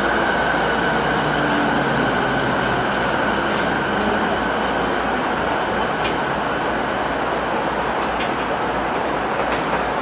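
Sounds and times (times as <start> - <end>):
electric train rumble: 0.0 - 10.0.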